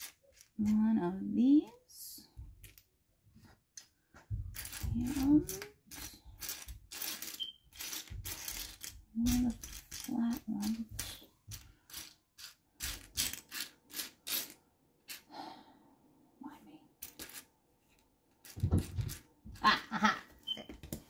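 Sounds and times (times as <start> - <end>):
plastic bricks clicking and clattering: 0.0 - 0.7, 4.5 - 15.2.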